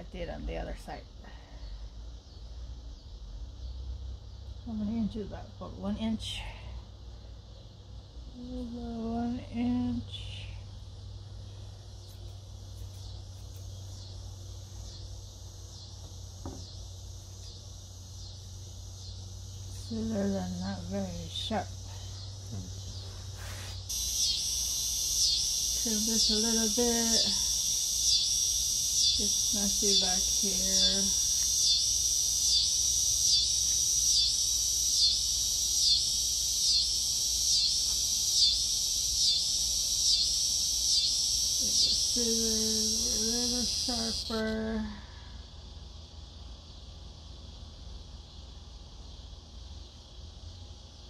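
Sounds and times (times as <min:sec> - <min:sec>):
low steady hum: 0:00.0 - 0:36.1
cicadas buzzing: 0:00.0 - 0:51.0
insect chorus: 0:00.0 - 0:51.0.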